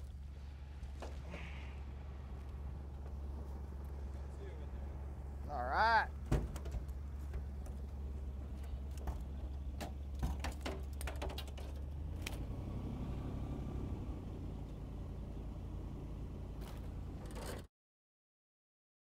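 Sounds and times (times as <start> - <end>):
knocks on metal deck: 6.2 - 6.9.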